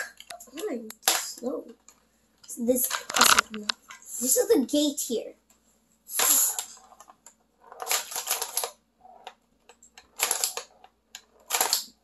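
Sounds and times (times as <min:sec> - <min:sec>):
ball rattling in toy pinball: 0:02.8 - 0:04.0, 0:06.1 - 0:12.0.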